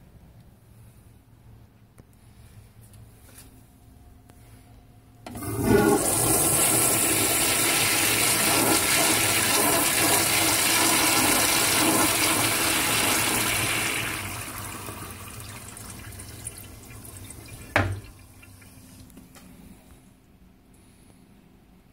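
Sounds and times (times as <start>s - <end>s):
toilet flushing: 5.3s - 19.1s.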